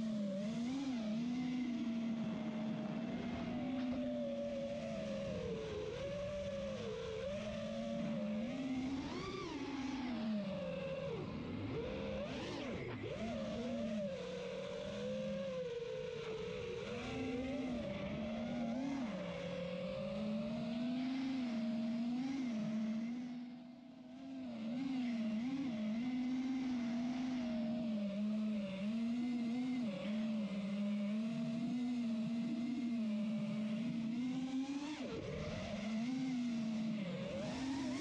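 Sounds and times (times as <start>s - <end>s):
racing drone motors whining: 0.0s - 38.0s.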